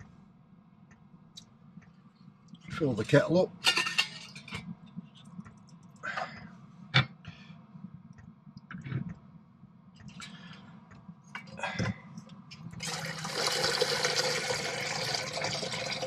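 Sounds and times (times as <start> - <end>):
tap water running into kettle: 12.8 - 16.0.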